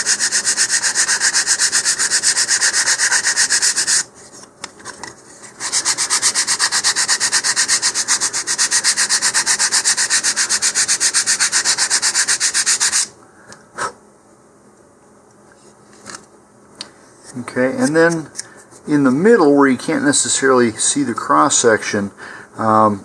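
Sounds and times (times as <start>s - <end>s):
sandpaper rubbing on wood: 0.0s - 4.1s, 5.6s - 13.1s.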